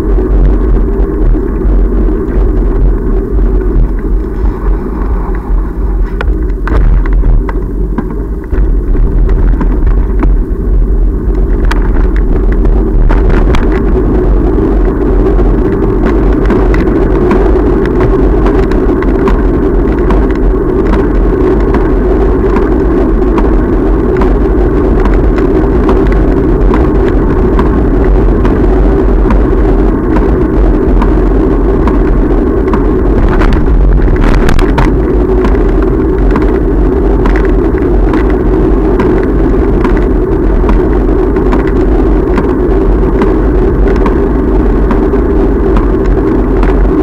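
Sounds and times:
wind and road noise: 0:00.0 - 0:47.0
bicycle clicks and rattles: 0:11.3 - 0:47.0.

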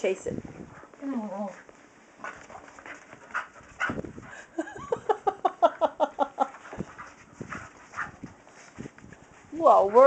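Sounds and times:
dog paws thumping on carpet: 0:00.6 - 0:04.4, 0:06.6 - 0:10.0.

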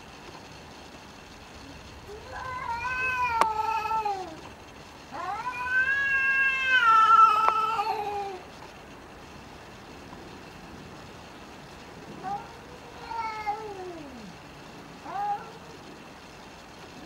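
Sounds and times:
cat yowling: 0:02.1 - 0:04.4, 0:05.1 - 0:08.4, 0:12.2 - 0:14.4, 0:15.0 - 0:15.8.

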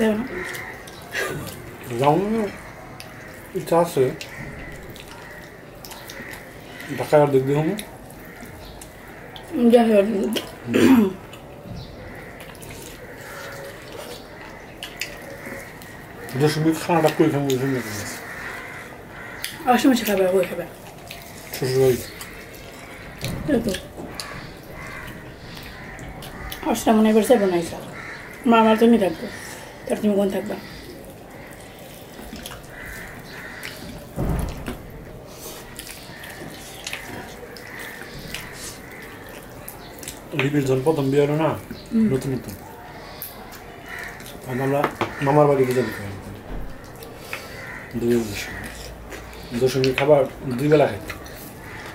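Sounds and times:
chewing and lip smacks: 0:00.3 - 0:09.5, 0:10.2 - 0:26.6, 0:30.6 - 0:40.9, 0:41.6 - 0:44.5, 0:46.3 - 0:51.9.

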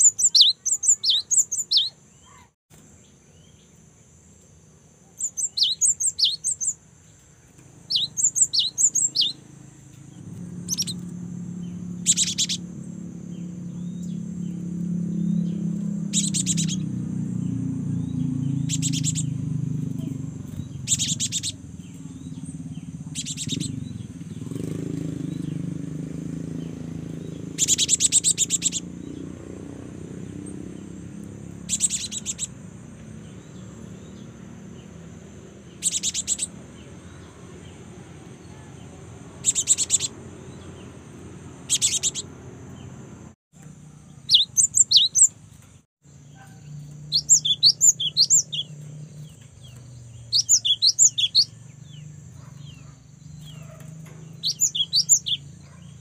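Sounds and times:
tit chirping: 0:00.0 - 0:02.0, 0:05.2 - 0:06.8, 0:07.9 - 0:09.4, 0:10.6 - 0:11.1, 0:12.0 - 0:12.7, 0:16.1 - 0:16.9, 0:18.5 - 0:19.5, 0:20.6 - 0:21.7, 0:23.1 - 0:23.8, 0:27.5 - 0:28.9, 0:31.5 - 0:32.6, 0:35.8 - 0:36.6, 0:39.4 - 0:40.2, 0:41.6 - 0:42.3, 0:44.2 - 0:45.4, 0:47.1 - 0:48.7, 0:50.2 - 0:52.0, 0:54.4 - 0:55.4.

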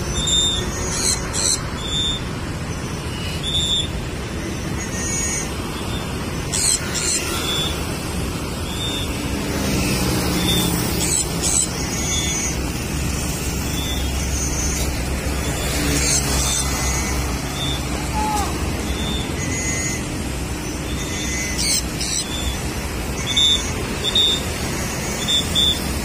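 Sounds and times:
highway traffic rumble: 0:00.0 - 0:26.0
motorcycles passing: 0:00.0 - 0:26.0.

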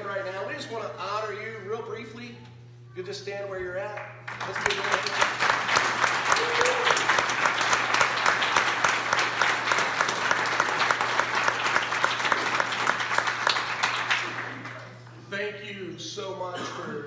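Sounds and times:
congregation applauding: 0:04.0 - 0:15.0.

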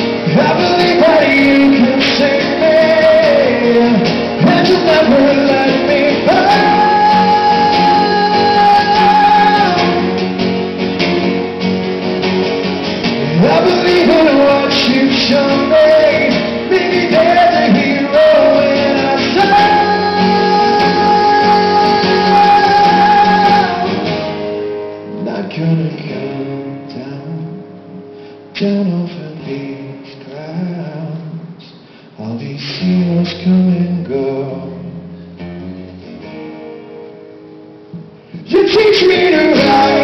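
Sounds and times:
man singing long notes: 0:00.0 - 0:10.4, 0:13.2 - 0:24.4, 0:38.3 - 0:40.0
strummed acoustic guitars: 0:00.0 - 0:40.0.

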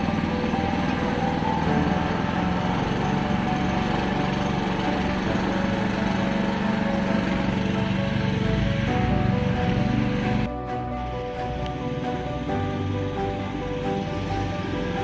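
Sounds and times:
all-terrain vehicle engine running: 0:00.0 - 0:10.5, 0:11.2 - 0:15.0.

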